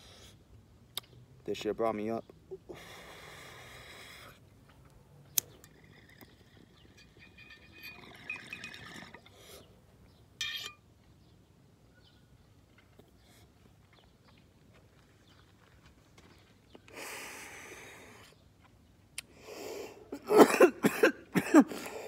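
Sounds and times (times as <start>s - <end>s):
water bubbling in bong: 5.5s - 9.3s.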